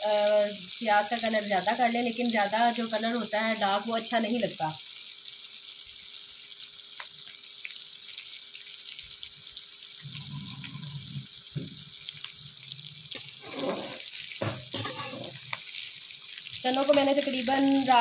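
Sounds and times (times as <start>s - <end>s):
onions sizzling in a pan: 0.0s - 18.0s
metal spoon scraping a pan: 13.2s - 15.8s.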